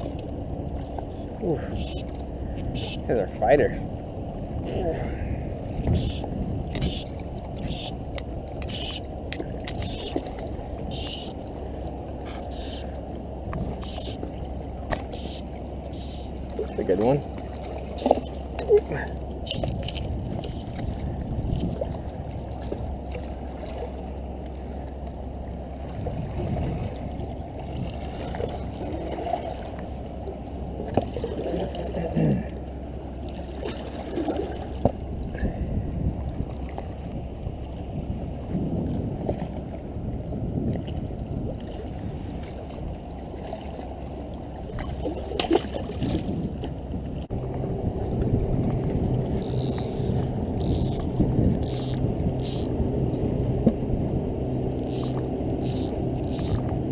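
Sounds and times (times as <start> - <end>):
seawater washing against rocks: 4.6 - 24.6, 40.7 - 56.9
fishing rod clicks and knocks: 6.7 - 11.2, 49.4 - 52.7, 54.7 - 56.8.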